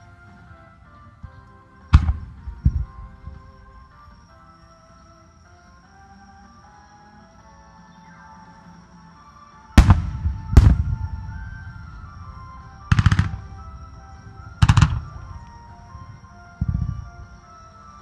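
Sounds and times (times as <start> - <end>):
faint music: 0.0 - 18.0
firework booms: 2.0 - 3.4, 9.8 - 15.7
crackling firework reports: 9.8 - 15.7.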